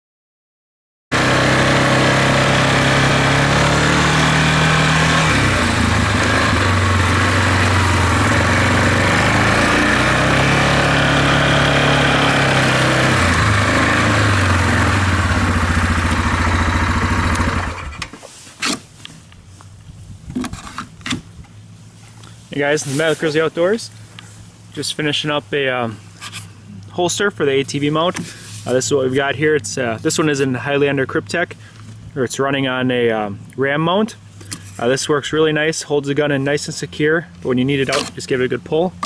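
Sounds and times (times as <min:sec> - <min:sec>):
atv engine running: 0:01.1 - 0:18.2.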